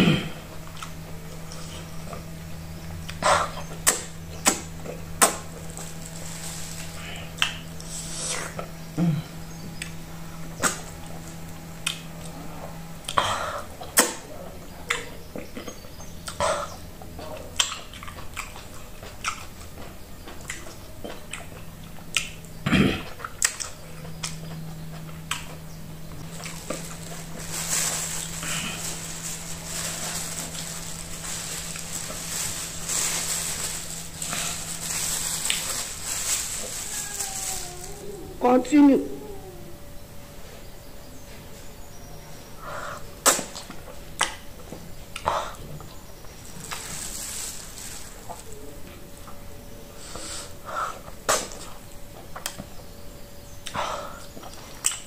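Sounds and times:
low steady hum: 0.0s - 55.0s
plastic bag crinkling: 3.9s - 7.9s, 26.2s - 38.3s, 46.3s - 48.6s
chewing with wet lip smacks: 17.2s - 22.6s.

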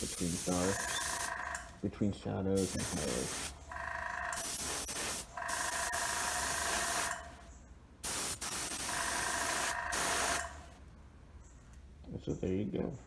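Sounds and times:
airbrush hissing with whistle: 0.0s - 1.3s, 4.4s - 6.0s.

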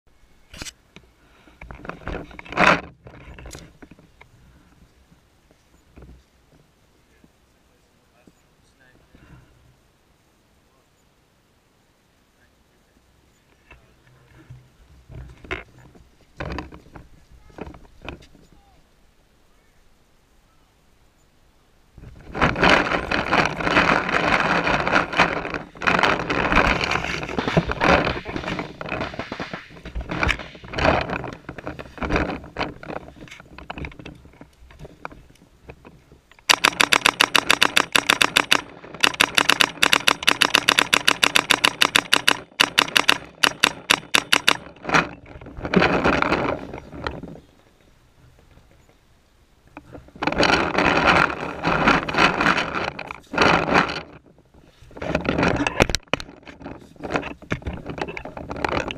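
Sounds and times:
irregular paintball fire clatter: 22.0s - 47.4s, 49.8s - 58.9s
paintball marker rapid firing: 36.5s - 44.7s.

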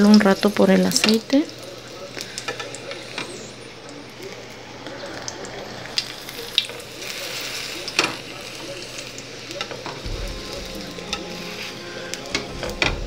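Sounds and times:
chile sizzling in hot oil: 0.0s - 13.0s.

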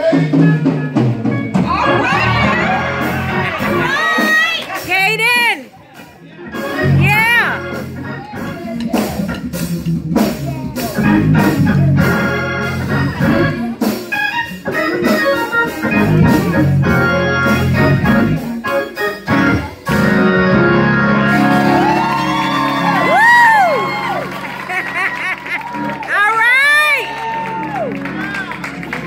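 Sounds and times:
organ holding chords: 0.0s - 4.8s, 6.3s - 29.0s
drum kit striking: 6.9s - 18.5s.

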